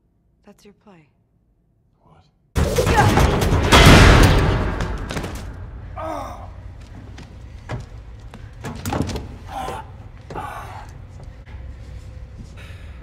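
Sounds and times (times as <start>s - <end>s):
low machinery hum: 5.4s - 13.0s.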